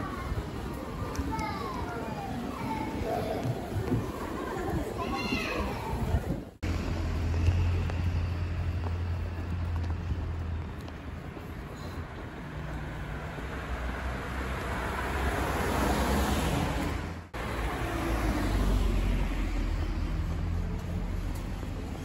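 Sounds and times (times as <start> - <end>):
car driving past: 12.4 - 20.6.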